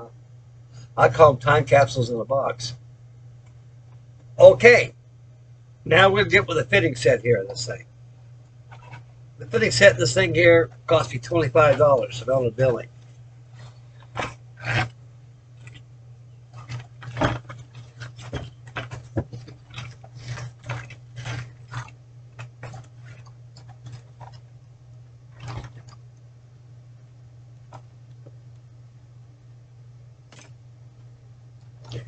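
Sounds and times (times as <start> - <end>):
steady low hum: 0.0 - 32.0.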